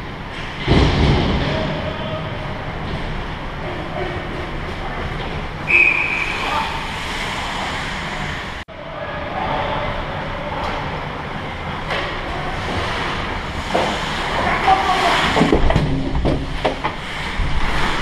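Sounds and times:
short shrill whistle: 0:05.7 - 0:06.7.

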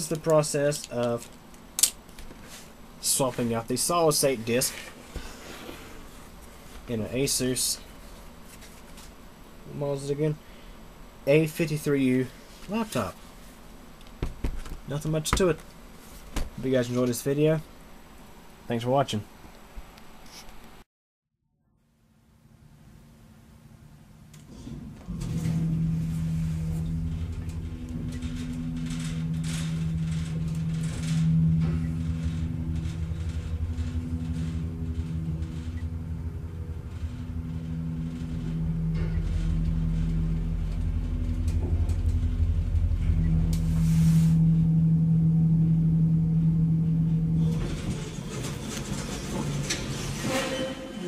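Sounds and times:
elevator low rumble: 0:00.0 - 0:17.0, 0:22.0 - 0:51.0
elevator hum: 0:22.2 - 0:51.0
elevator hiss and rattle: 0:23.6 - 0:44.8, 0:47.3 - 0:51.0.

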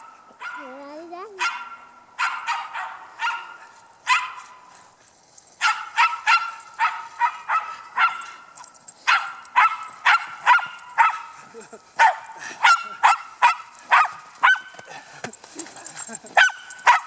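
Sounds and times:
dog barking: 0:00.0 - 0:00.8, 0:01.4 - 0:04.7, 0:05.6 - 0:11.4, 0:12.0 - 0:14.8, 0:16.4 - 0:17.0.

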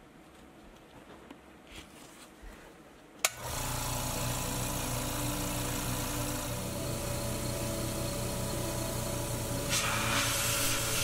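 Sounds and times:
air compressor motor humming: 0:03.2 - 0:11.0.

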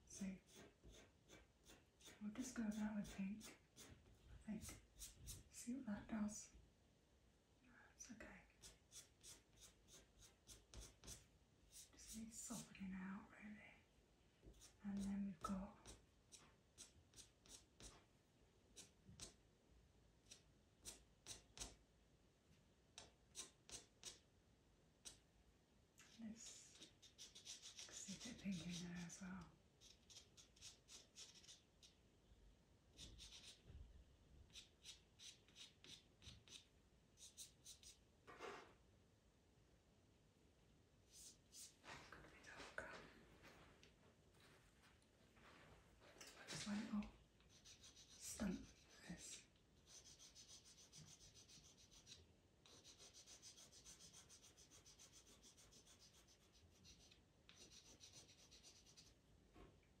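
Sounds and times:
pencil scratching on paper: 0:00.1 - 0:04.0, 0:04.6 - 0:05.6, 0:08.6 - 0:12.7, 0:14.5 - 0:15.2, 0:15.8 - 0:18.1, 0:20.2 - 0:21.8, 0:23.0 - 0:24.2, 0:26.1 - 0:29.2, 0:29.8 - 0:32.0, 0:32.9 - 0:33.6, 0:34.5 - 0:38.6, 0:41.1 - 0:41.8, 0:46.5 - 0:59.2.

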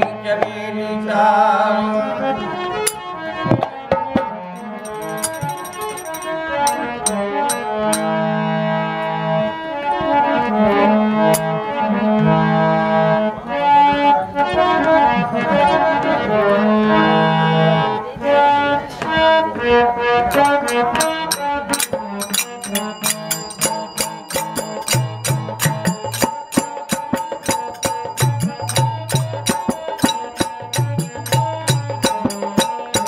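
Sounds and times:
harmonium playing: 0:00.0 - 0:33.0
sharp percussive strikes: 0:02.8 - 0:08.3, 0:20.3 - 0:33.0
hand drum playing: 0:03.5 - 0:08.2, 0:20.3 - 0:33.0.

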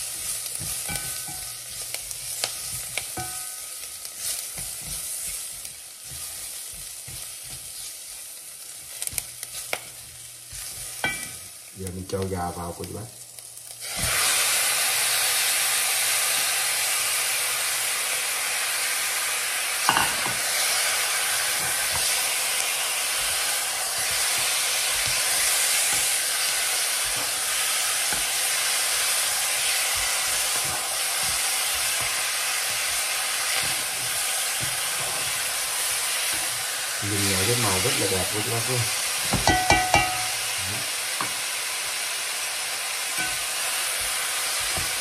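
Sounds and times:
spatula stirring in pot: 0:00.0 - 0:11.4, 0:19.9 - 0:36.8
chicken sizzling in hot oil: 0:00.0 - 0:45.0.

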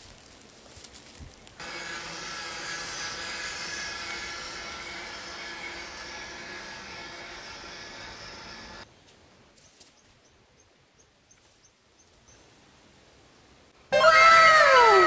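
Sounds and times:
electric lawnmower motor whirring: 0:01.6 - 0:08.9.

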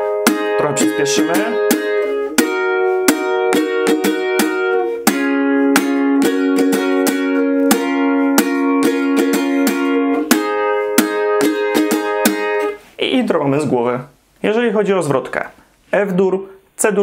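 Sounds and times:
ukulele strumming: 0:00.0 - 0:12.9.

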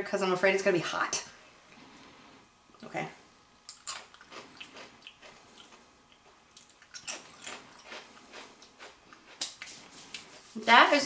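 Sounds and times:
person chewing crunchy cracker: 0:03.6 - 0:10.3.

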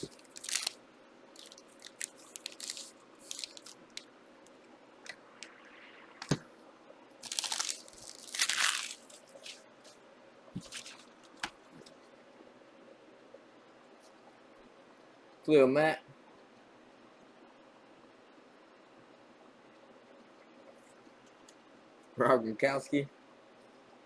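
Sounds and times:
cards rustling and crinkling: 0:00.0 - 0:00.8, 0:01.4 - 0:04.1, 0:07.2 - 0:09.6, 0:10.6 - 0:11.6.

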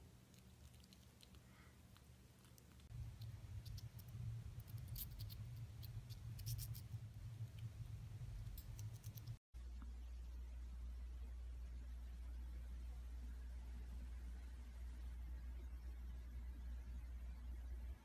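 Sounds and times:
steady low hum: 0:00.0 - 0:18.0
chipmunk nibbling clicks and scratches: 0:00.2 - 0:07.7, 0:08.4 - 0:09.4.

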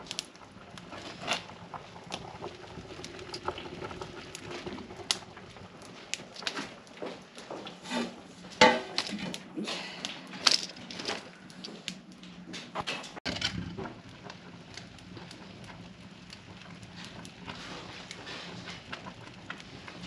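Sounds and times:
metal pots and utensils clanking: 0:07.5 - 0:11.2.

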